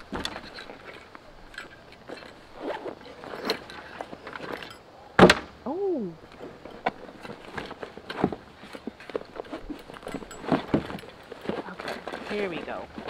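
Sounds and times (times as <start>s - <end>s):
footsteps crunching: 6.2s - 13.0s.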